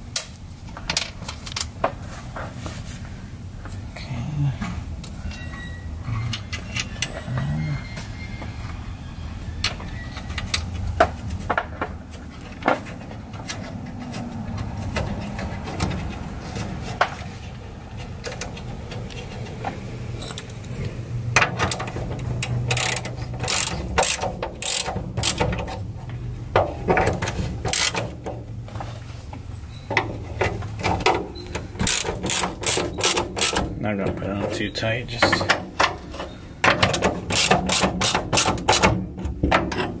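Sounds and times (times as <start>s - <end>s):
socket ratchet wrench clicking: 22.7s - 25.4s, 27.7s - 28.0s, 31.8s - 33.6s, 37.3s - 38.9s.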